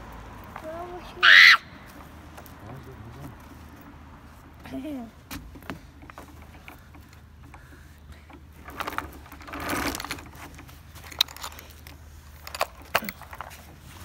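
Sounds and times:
metal chain and bucket clinking: 8.6 - 13.7.

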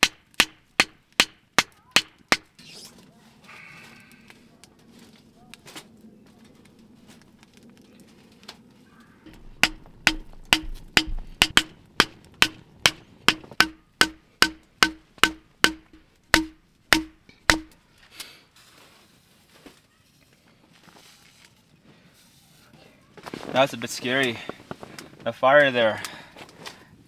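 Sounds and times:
wood splitting knocks: 9.3 - 17.8.

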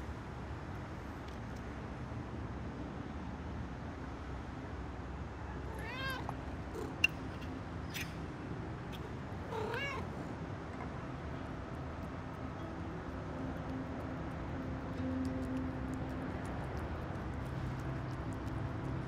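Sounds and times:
low background hum: 0.0 - 19.0
cat meowing: 5.6 - 7.1, 9.5 - 10.1.

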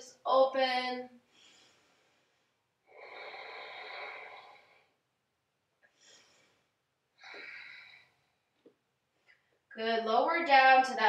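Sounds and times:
woman breathing: 1.2 - 5.0, 5.8 - 8.5.

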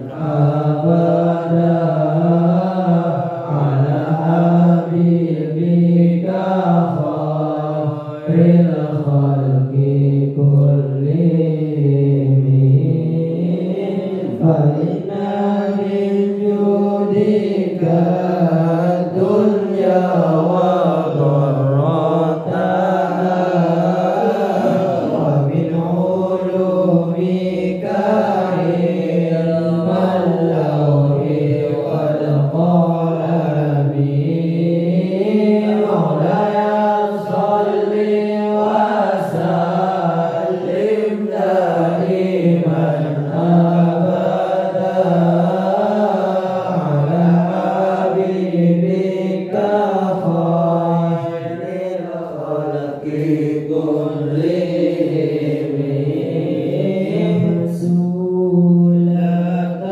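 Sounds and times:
young man chanting through microphone: 0.0 - 59.9.

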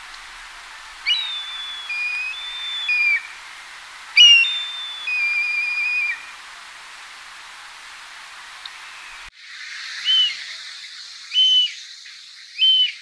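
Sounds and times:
kite whistling call: 1.0 - 3.4, 4.2 - 6.3, 10.0 - 10.5, 11.3 - 11.8, 12.6 - 13.0.

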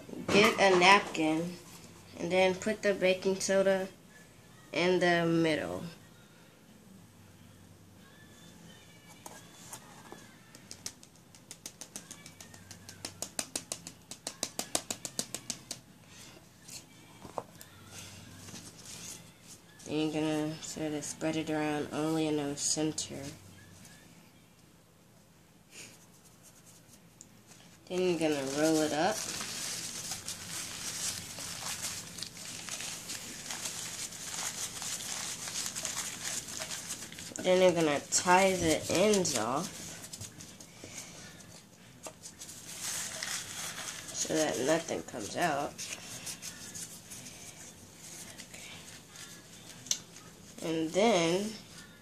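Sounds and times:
paper towel rustling and crinkling: 26.3 - 50.6.

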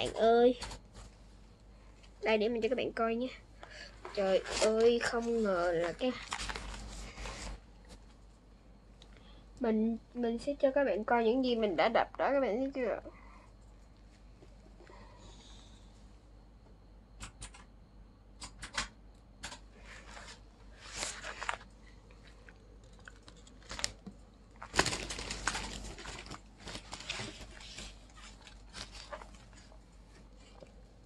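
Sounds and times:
book pages turning: 4.1 - 7.6, 20.0 - 22.4, 23.0 - 30.6.

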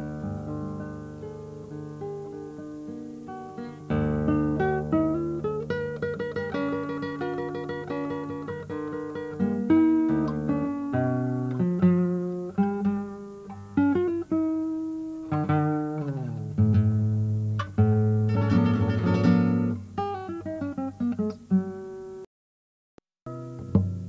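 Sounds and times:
solo classical guitar: 0.0 - 22.3, 23.3 - 24.0.

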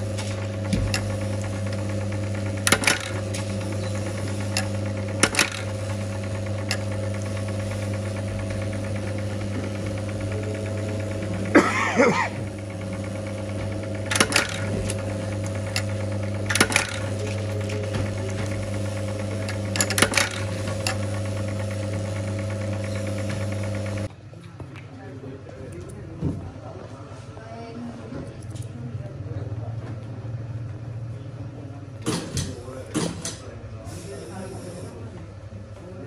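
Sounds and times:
machine hum: 0.0 - 24.2
metallic clacks of press: 14.1 - 15.9.

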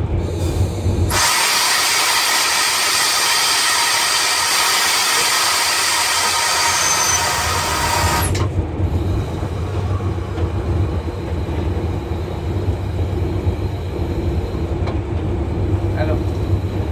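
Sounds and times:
locomotive engine rumbling: 0.0 - 16.9
loud hiss: 1.1 - 8.4.

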